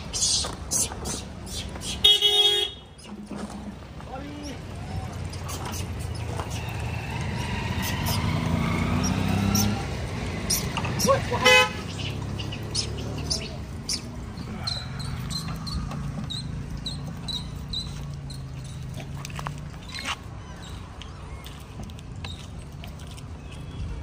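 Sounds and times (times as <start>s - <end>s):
car horn toot: 2.0s - 3.0s, 11.4s - 11.8s.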